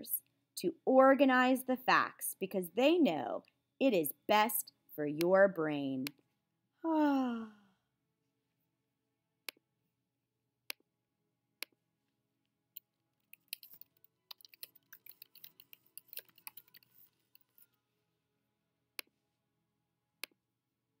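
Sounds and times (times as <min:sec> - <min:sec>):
keyboard typing: 0:13.3 - 0:17.5.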